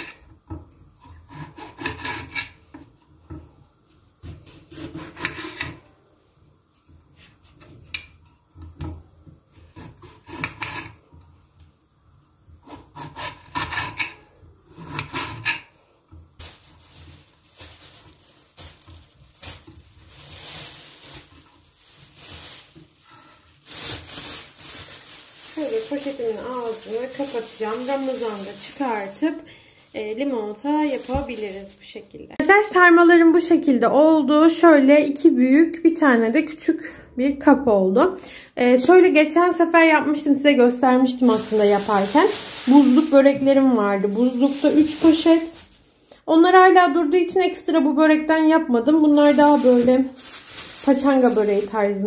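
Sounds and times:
soft scraping and rustling: 0:41.2 - 0:45.9.

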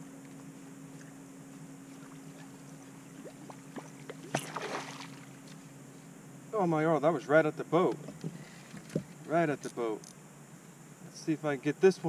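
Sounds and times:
steady low hum: 0:00.0 - 0:12.0
fish splashing on water: 0:01.9 - 0:05.4.

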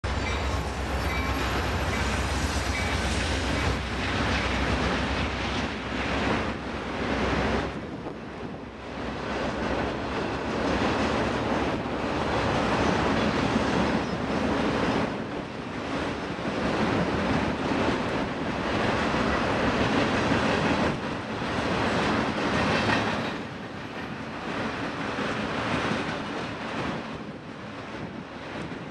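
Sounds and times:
train wheels rumbling on rails: 0:00.0 - 0:28.9.

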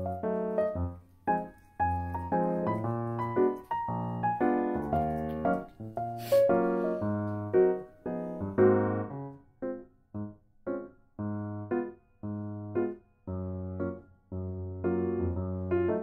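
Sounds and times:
brief hiss: 0:06.1 - 0:06.8.

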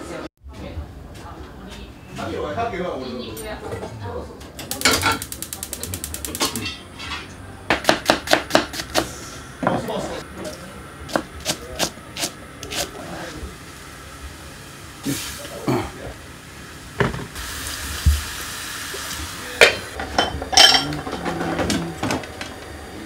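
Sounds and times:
kitchen utensils and pots clattering: 0:03.4 - 0:05.3, 0:06.2 - 0:07.4, 0:19.6 - 0:22.4
knife chopping on cutting board: 0:07.7 - 0:09.1
steady hiss: 0:12.7 - 0:19.7.

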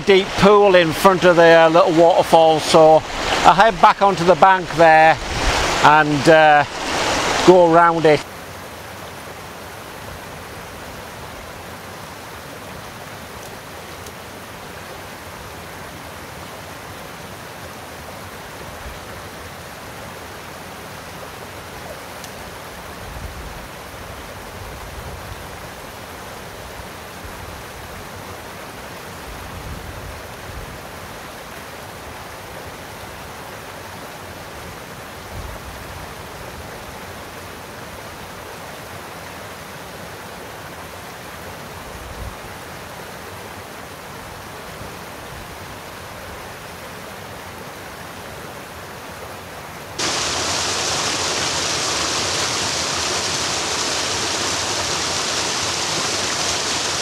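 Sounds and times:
waterfall rushing: 0:00.0 - 0:19.8, 0:49.9 - 0:57.0
low rumbles: 0:50.0 - 0:57.0.

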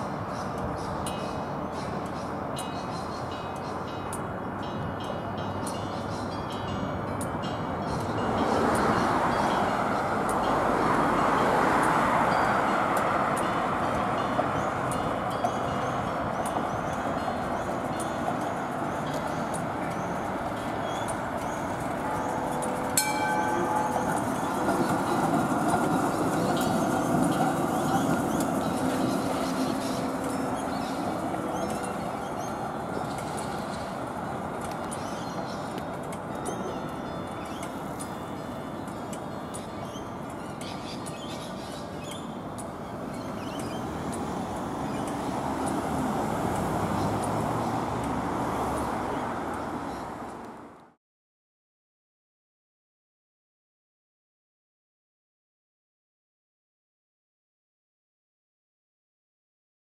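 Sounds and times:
tram rumbling on rails: 0:00.0 - 0:50.9
city road traffic: 0:00.0 - 0:51.0
car passing close by: 0:43.9 - 0:50.6.

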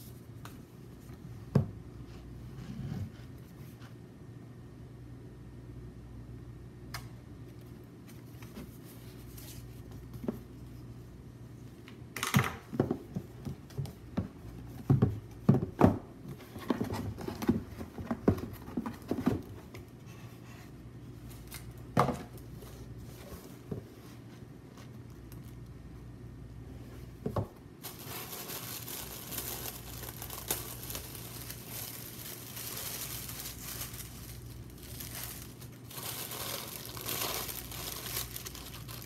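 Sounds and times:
cardboard scraping and rustling: 0:16.2 - 0:19.7.

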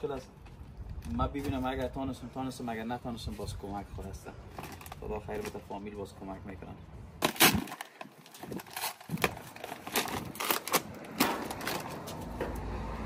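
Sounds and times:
paper bag crackling: 0:07.2 - 0:12.1.

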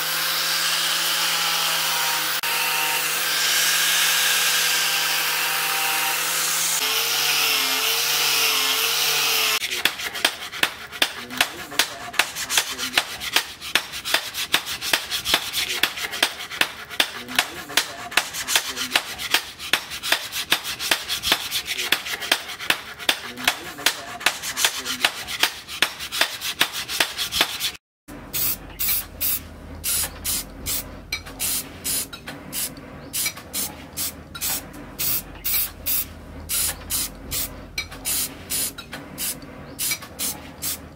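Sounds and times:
angle grinder sanding steel: 0:00.0 - 0:27.8, 0:28.4 - 0:40.8
cloth rubbing on a blade: 0:09.6 - 0:27.8.

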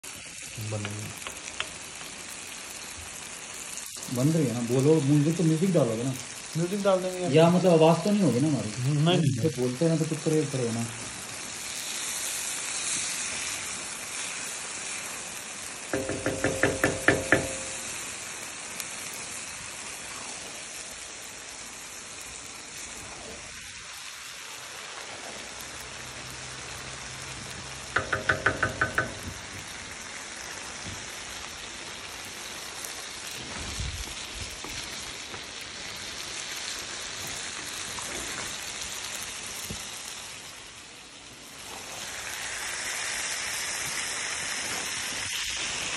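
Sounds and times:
food sizzling in a pan: 0:00.0 - 0:45.9
ringing knocks on metal pan: 0:16.0 - 0:17.8, 0:28.0 - 0:29.4.

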